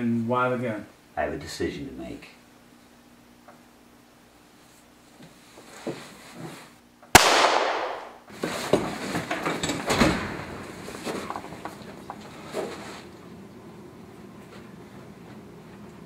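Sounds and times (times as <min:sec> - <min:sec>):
rustling: 0:04.6 - 0:06.8, 0:10.6 - 0:13.3
gunshot with echo: 0:07.2 - 0:08.2.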